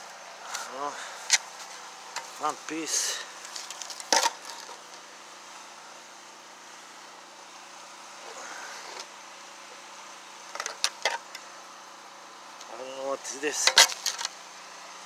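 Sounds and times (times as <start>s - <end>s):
shovel scraping into soil: 13.6s - 14.3s.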